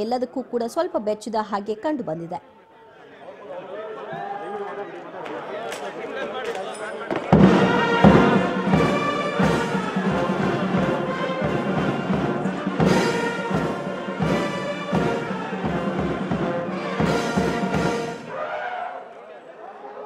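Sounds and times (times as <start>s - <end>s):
steady drumbeat: 7.3s - 18.4s
wind instruments holding notes: 7.4s - 19.0s.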